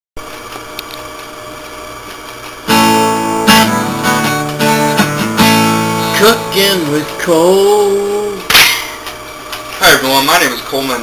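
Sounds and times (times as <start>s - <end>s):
acoustic guitar strumming: 2.6s - 8.8s.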